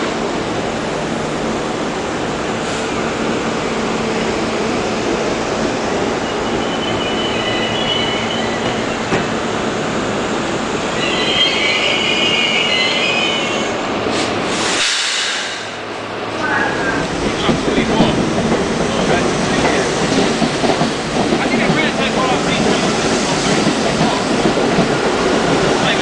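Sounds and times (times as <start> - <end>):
train wheels rumbling on rail: 0.0 - 26.0
wheels squealing: 6.2 - 9.1.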